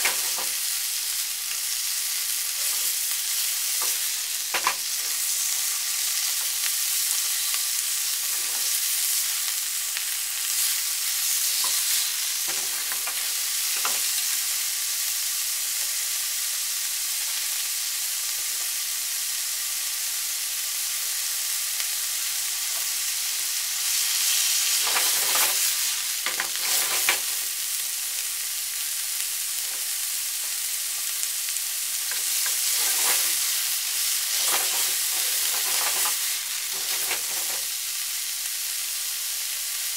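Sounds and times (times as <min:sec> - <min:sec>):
meat sizzling in oil: 0:00.0 - 0:39.9
chopsticks scraping and knocking: 0:24.8 - 0:27.4, 0:32.1 - 0:33.6, 0:34.3 - 0:37.7.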